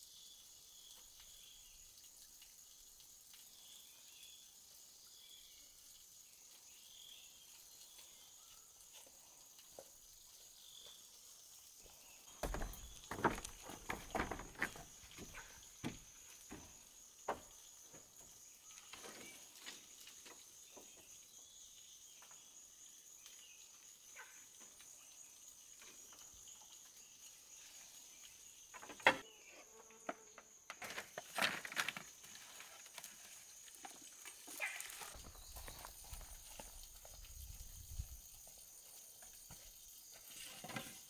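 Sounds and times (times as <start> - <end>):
insects trilling: 0.0 - 41.0.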